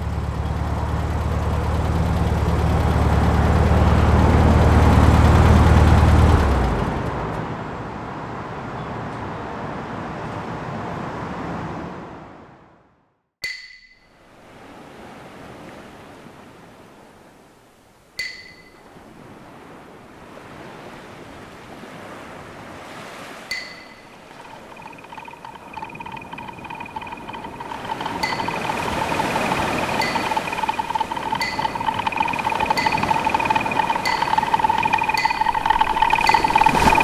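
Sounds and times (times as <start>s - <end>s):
faint steady tone: 23.5s - 37.0s
sharp ringing strikes: 23.5s - 37.0s
ambient hiss: 24.5s - 37.0s.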